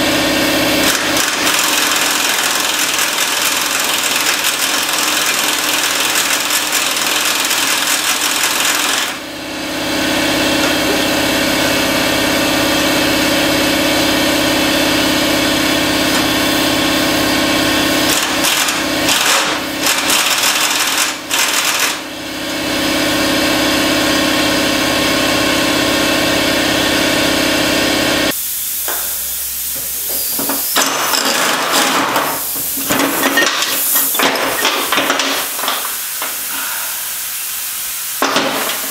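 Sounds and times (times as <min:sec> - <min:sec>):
impact wrench hammering: 0:00.7 - 0:09.2, 0:17.7 - 0:22.0, 0:28.8 - 0:36.8, 0:38.2 - 0:38.9.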